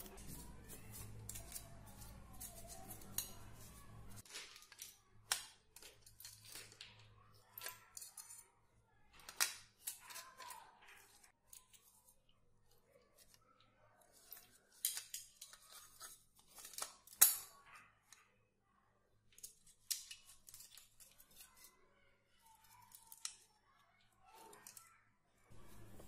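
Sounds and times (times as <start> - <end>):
plastic parts and wires rattling: 0.0 - 8.5.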